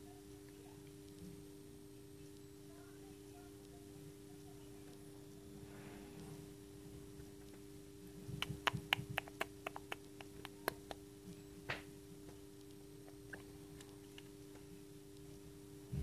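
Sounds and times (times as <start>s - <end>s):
steady low hum: 0.0s - 16.0s
chick tapping on eggshell: 8.4s - 11.0s.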